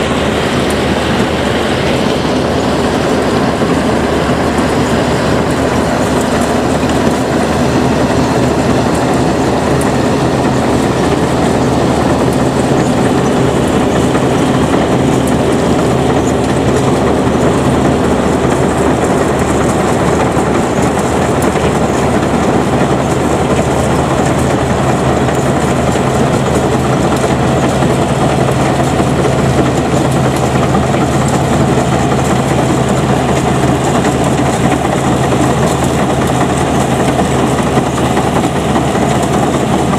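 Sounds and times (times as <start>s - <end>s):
combine harvester engine running: 0.0s - 39.9s
threshing mechanism running: 0.0s - 39.9s.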